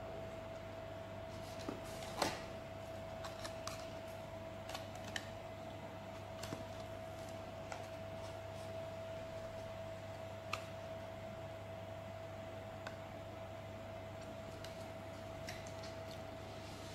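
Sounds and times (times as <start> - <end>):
faint steady hum: 0.0 - 16.9.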